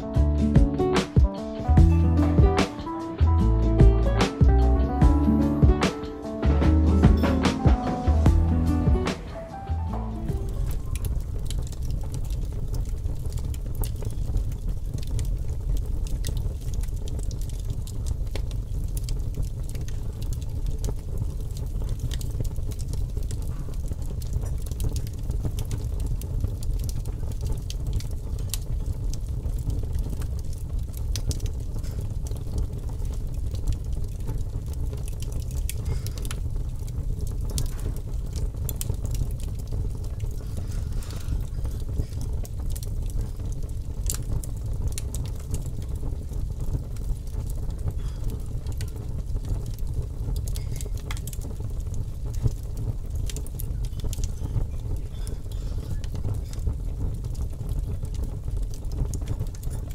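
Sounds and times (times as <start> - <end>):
fire crackling and popping: 0.0 - 59.9
low background rumble: 9.8 - 50.5.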